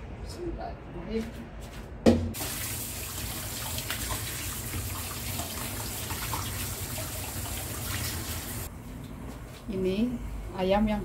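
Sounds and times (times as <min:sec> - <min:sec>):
hands rinsing chicken: 0:02.4 - 0:08.7.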